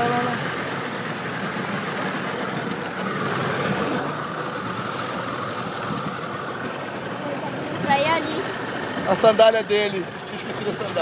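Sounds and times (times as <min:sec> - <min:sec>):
outboard motor running: 0:00.0 - 0:11.0
water rushing: 0:00.0 - 0:11.0.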